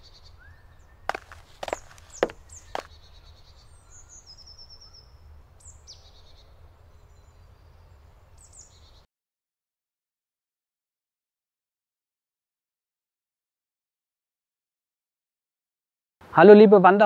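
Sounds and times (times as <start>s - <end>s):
bird trill: 0.0s - 9.0s
small birds chirping: 0.0s - 9.1s.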